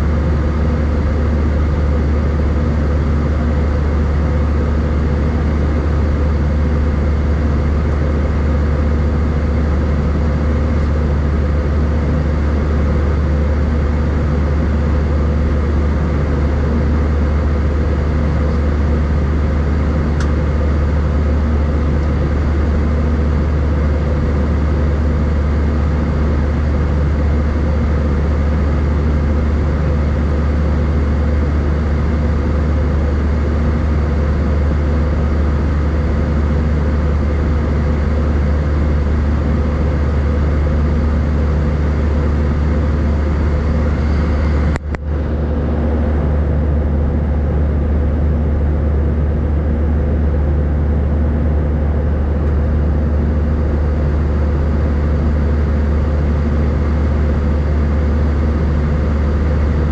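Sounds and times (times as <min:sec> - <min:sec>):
airplane cabin engine drone: 0:00.0 - 0:59.9.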